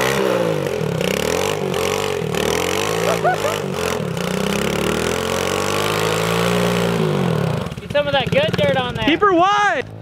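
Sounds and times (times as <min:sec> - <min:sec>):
dirt bike engine revving high: 0:00.0 - 0:09.4
wheel spinning in dirt: 0:03.9 - 0:10.0.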